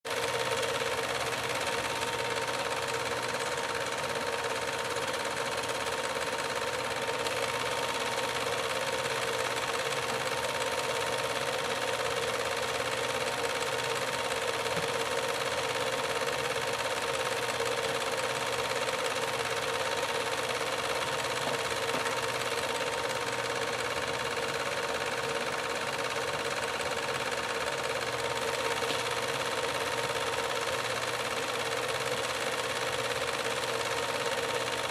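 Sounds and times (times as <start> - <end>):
film projector whirring: 0.0 - 34.9.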